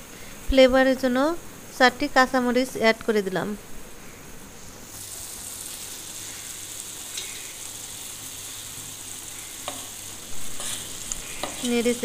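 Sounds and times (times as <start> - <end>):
fish curry bubbling and sizzling: 5.0 - 11.7.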